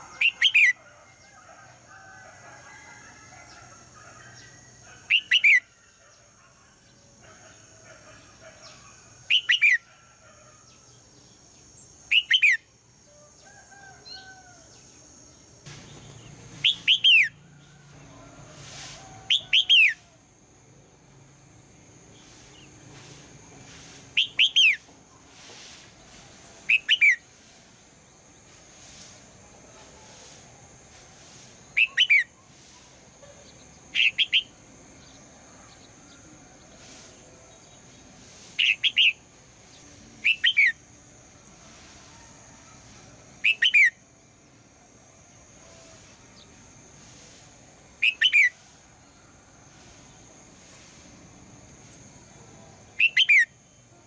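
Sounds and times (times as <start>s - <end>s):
bird calling clear notes: 16.0s - 17.4s, 40.2s - 40.8s, 48.0s - 48.6s, 53.0s - 53.6s.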